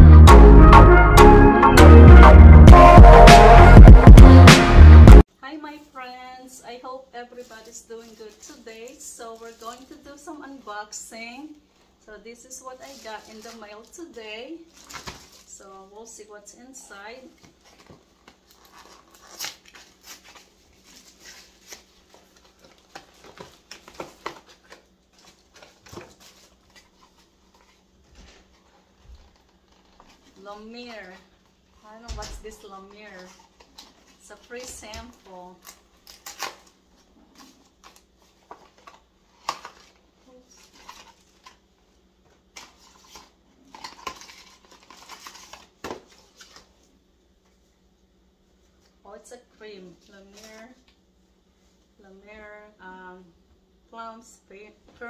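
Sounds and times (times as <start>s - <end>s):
paper rustling: 7.4s - 10.2s, 12.6s - 14.1s, 17.3s - 31.5s, 42.5s - 46.8s.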